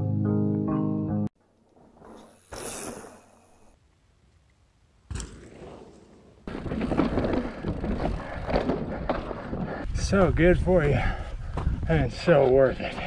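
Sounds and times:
bike tyres rattling over rock: 5.1 - 10.6.

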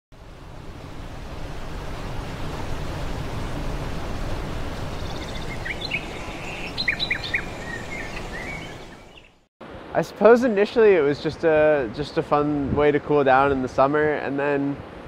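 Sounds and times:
whitewater rushing through rapids: 0.2 - 8.8
songbird chirping: 4.6 - 9.5.

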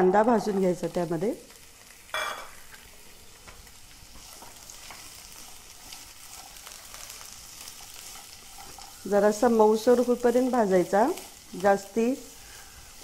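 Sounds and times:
onions sizzling in hot oil: 0.0 - 13.0
spatula tapping and scraping: 7.7 - 9.0.

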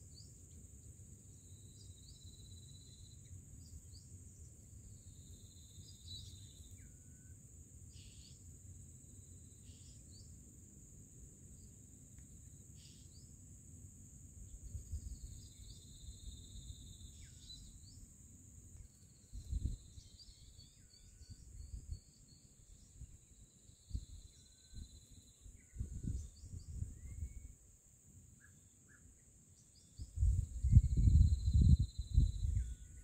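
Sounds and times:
high-pitched insect drone: 18.8 - 27.6, 30.0 - 33.0.

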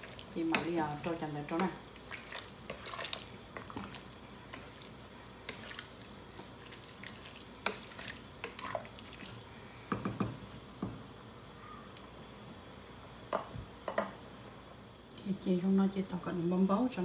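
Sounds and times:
broth sloshing: 1.9 - 9.5.

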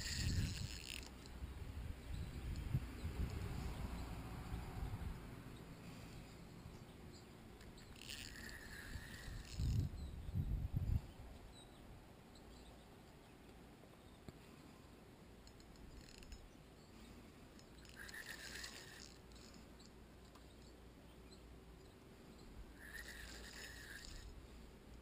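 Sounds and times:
wind buffeting microphone: 0.0 - 0.8, 1.4 - 5.3, 8.9 - 11.3.

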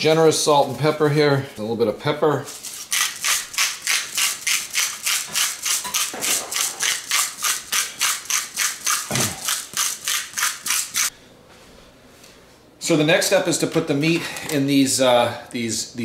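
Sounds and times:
pepper grinder grinding: 2.5 - 11.1.

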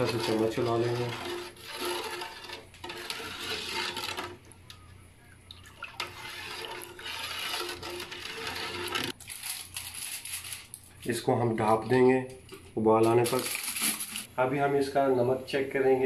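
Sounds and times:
ladle stirring liquid in pot: 0.0 - 9.2.

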